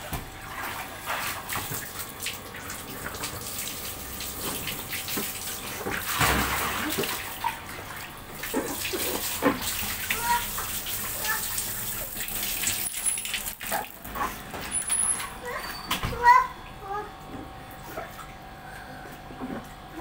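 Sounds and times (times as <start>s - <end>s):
water splashing in paddling pool: 0.0s - 14.4s
heavy splash: 6.1s - 7.3s.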